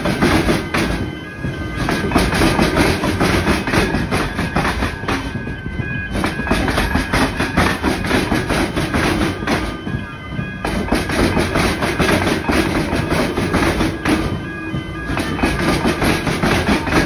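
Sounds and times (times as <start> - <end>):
train wheels clattering over rails: 0.0 - 17.0.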